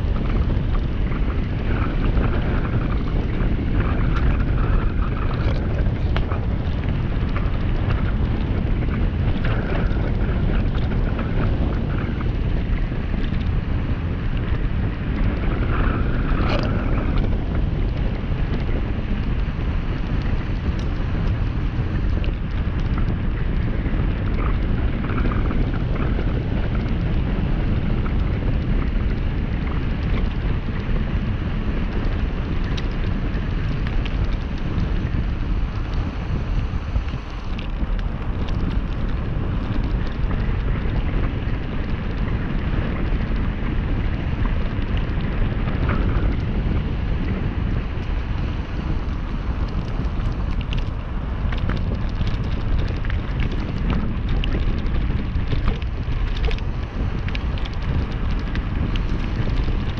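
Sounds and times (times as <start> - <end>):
wind buffeting microphone: 0.0 - 59.9
tyres rolling on gravel: 44.7 - 59.9.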